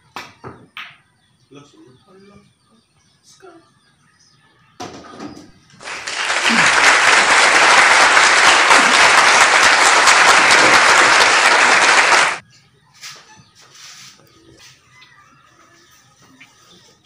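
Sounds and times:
canned applause: 5.8s - 12.4s.

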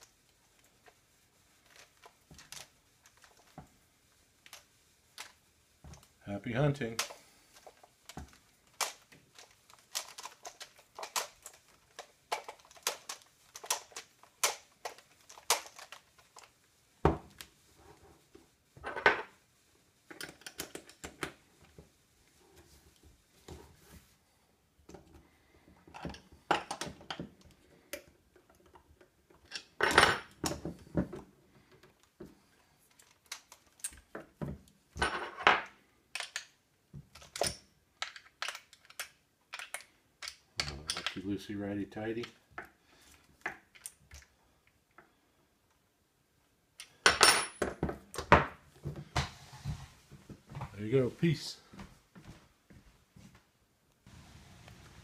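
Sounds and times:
clicks knocks and metallic clinks: 32.9s - 41.3s.

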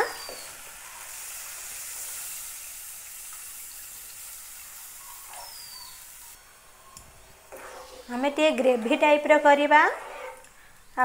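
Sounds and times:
water pouring into frying pan: 0.0s - 6.2s
water hissing in hot pan: 0.0s - 6.4s.

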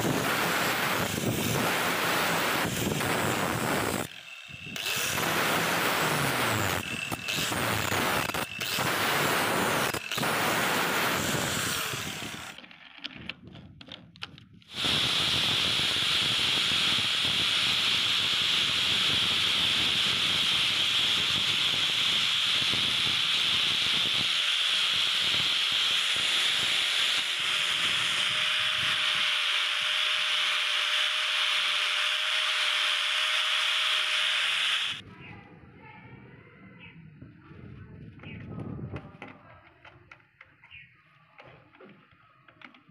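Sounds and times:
angle grinder sanding metal: 0.0s - 12.6s, 14.7s - 35.0s.

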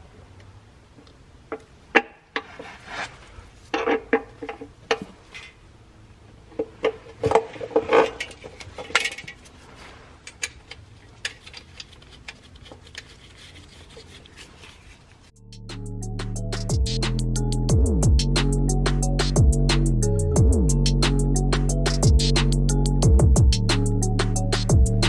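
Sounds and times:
metal parts knocking together: 6.6s - 9.5s
metal parts clicking and clinking: 6.6s - 9.6s, 10.2s - 14.9s.

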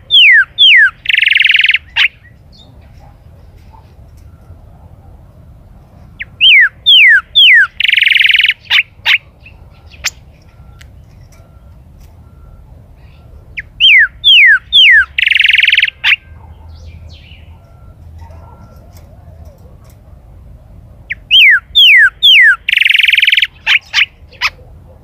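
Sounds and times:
bird singing whistles and trill: 0.1s - 2.8s, 6.2s - 11.6s, 13.1s - 17.9s, 21.1s - 24.5s.

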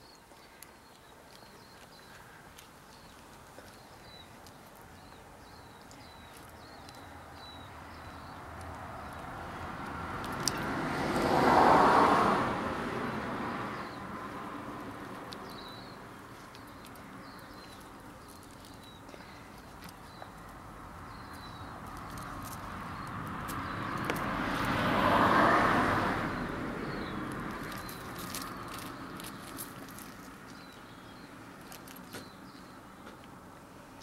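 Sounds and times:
car passing by: 7.6s - 16.1s, 20.7s - 30.2s.

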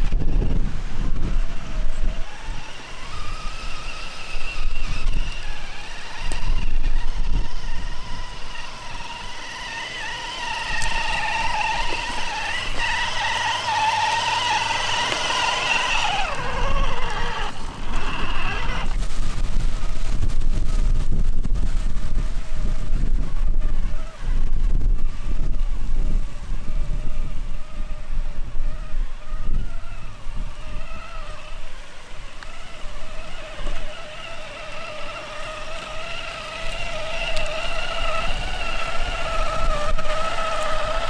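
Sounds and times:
rc truck motor whining: 0.0s - 41.0s.

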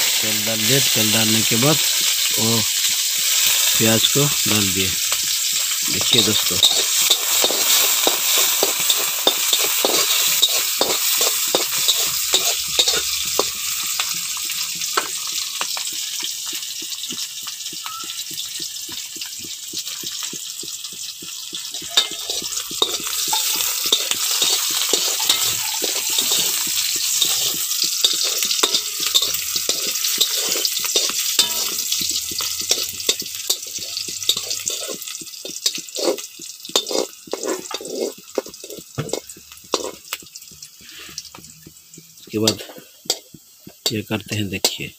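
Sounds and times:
onions sizzling in oil: 0.0s - 44.9s
metal spatula scraping pan: 5.4s - 15.2s, 21.8s - 40.2s.

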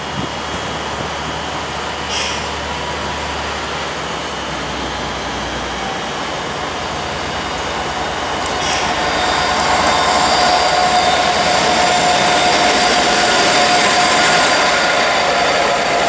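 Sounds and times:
diesel locomotive engine: 0.0s - 16.0s
steady whine: 6.2s - 16.0s.

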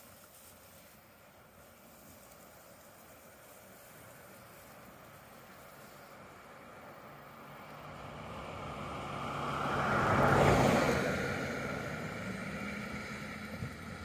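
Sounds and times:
motor vehicle passing by: 3.4s - 14.0s.

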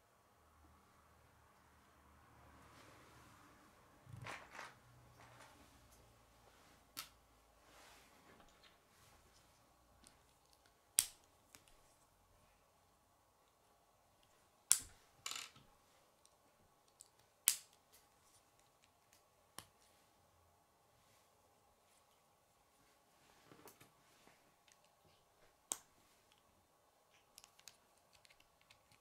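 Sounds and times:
plastic pieces snapping together: 10.0s - 11.8s, 16.9s - 17.8s.

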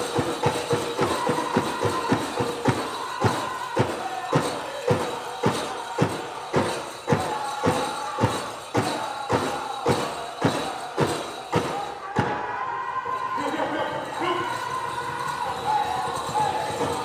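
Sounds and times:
big drum beating: 0.0s - 12.4s.

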